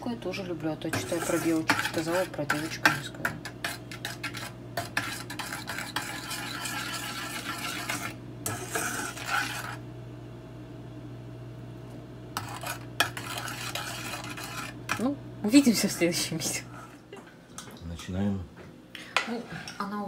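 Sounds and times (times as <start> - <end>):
metal spoon scraping saucepan: 0.9 - 9.8, 12.4 - 16.5.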